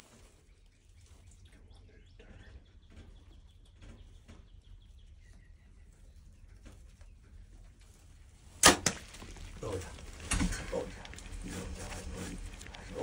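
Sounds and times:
faint bird chirps: 0.0s - 7.6s.

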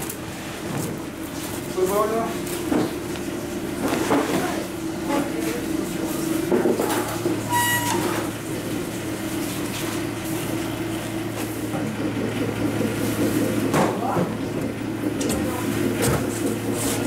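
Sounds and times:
low machine hum: 0.0s - 17.0s
short electronic beep: 7.5s - 8.2s.

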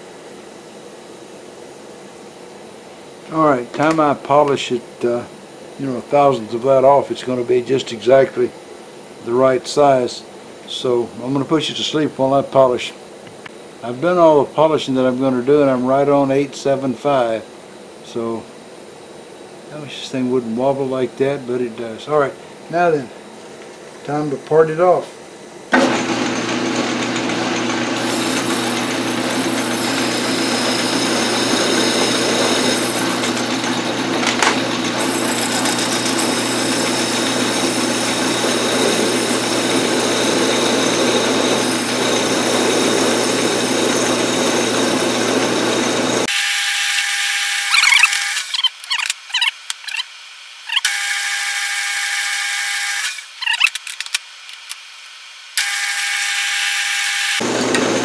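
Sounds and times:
metal lathe cutting: 25.7s - 50.1s, 50.7s - 53.3s, 55.6s - 58.0s.

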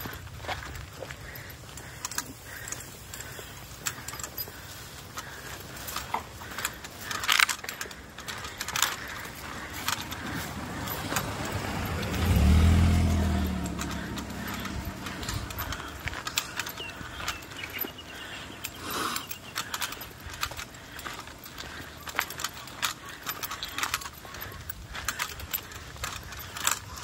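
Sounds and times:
footsteps walking: 0.0s - 27.0s
scattered clicks: 0.0s - 27.0s
car driving past: 9.6s - 16.5s.

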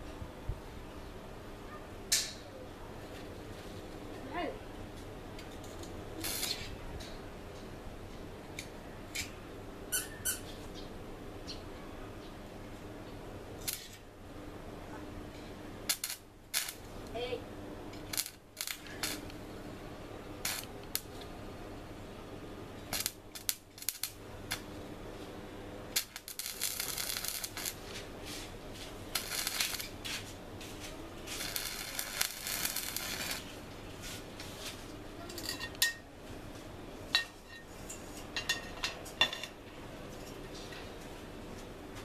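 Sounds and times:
welding arc crackling and hissing: 6.2s - 6.7s, 13.6s - 14.0s, 15.9s - 19.4s, 20.4s - 21.2s, 22.9s - 24.8s, 25.9s - 34.4s.

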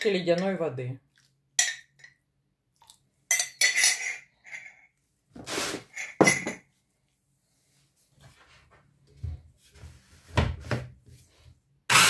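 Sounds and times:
metal spoon clinking glass jar: 3.3s - 4.9s, 6.0s - 6.6s.

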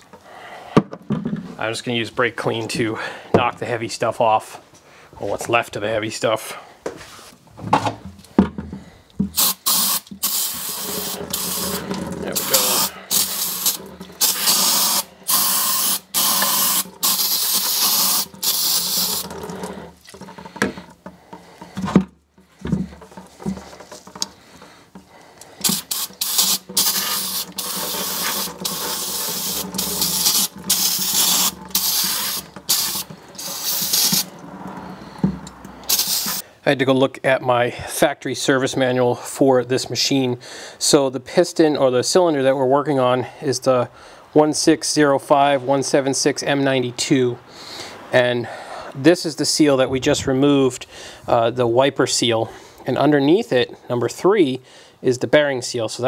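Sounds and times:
aerosol spray hissing: 9.4s - 19.3s, 25.6s - 34.3s, 35.9s - 36.4s.

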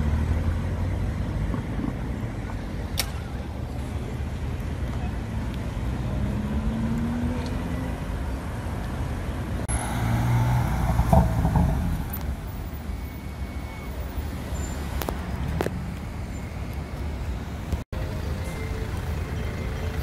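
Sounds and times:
street traffic: 0.0s - 20.0s
car accelerating past: 9.7s - 12.3s.

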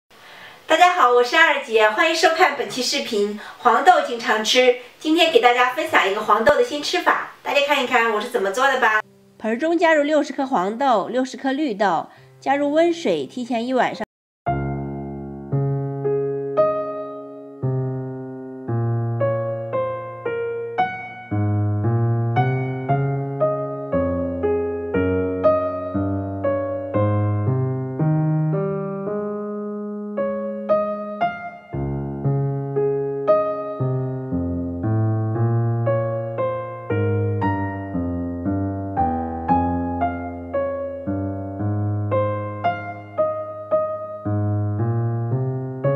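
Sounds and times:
gentle keyboard melody: 14.5s - 45.9s
slow piano chords: 14.5s - 45.9s.

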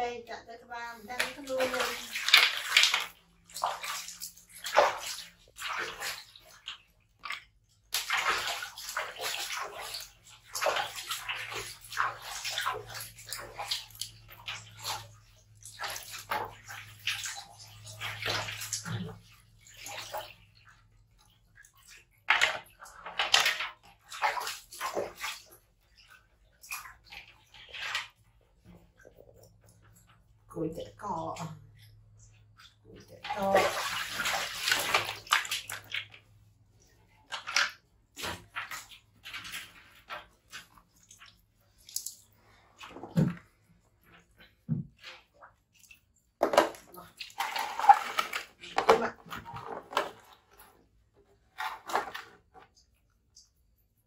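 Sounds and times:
water splashing in a washbasin: 0.0s - 54.0s
water pouring from a scoop: 1.1s - 20.8s, 33.0s - 44.4s, 45.0s - 50.9s.

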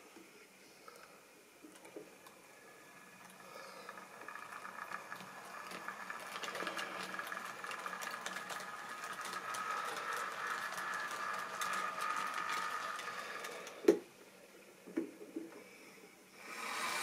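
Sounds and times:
electric motor whine: 2.6s - 13.9s, 16.4s - 17.0s
wheels clicking over rail joints: 3.7s - 13.9s.

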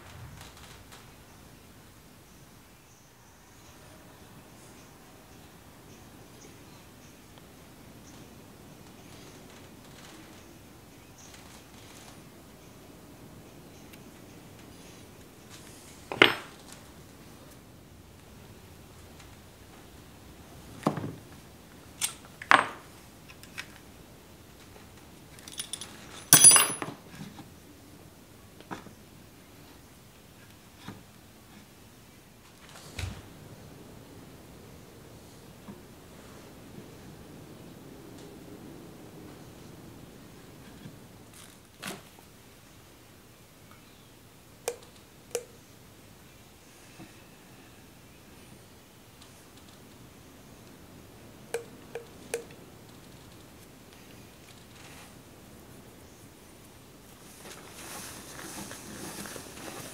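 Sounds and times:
metal hand tools clattering: 25.4s - 26.9s
sharp metallic clinks: 25.5s - 26.9s.

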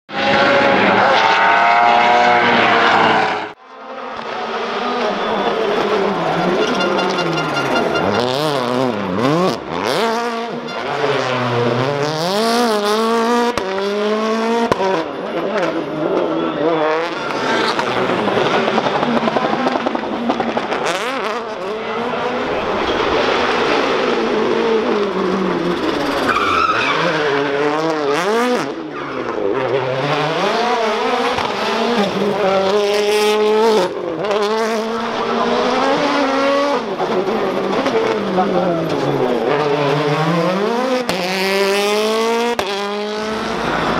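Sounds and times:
rally car engine revving: 0.1s - 43.9s
tyre squeal: 5.0s - 8.7s, 25.8s - 27.4s.

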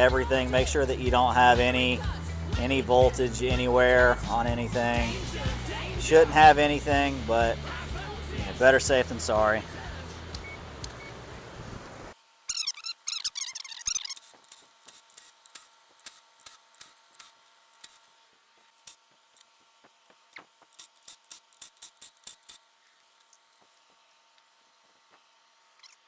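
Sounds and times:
cordless ratchet whirring: 12.5s - 18.1s, 20.3s - 23.4s.

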